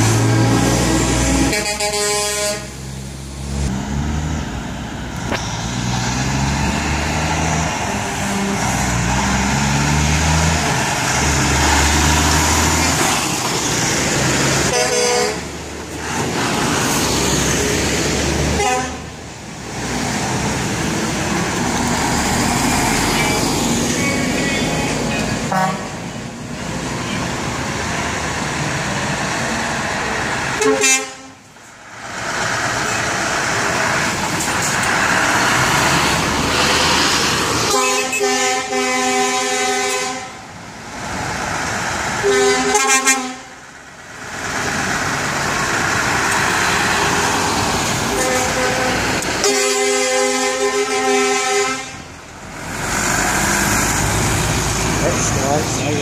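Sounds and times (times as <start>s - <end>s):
truck air horns: 0.0s - 2.8s, 14.5s - 15.6s, 18.5s - 19.1s, 24.1s - 26.1s, 30.5s - 31.5s, 37.6s - 40.4s, 42.2s - 43.6s, 48.0s - 52.1s
passing trucks diesel engines: 0.0s - 56.0s.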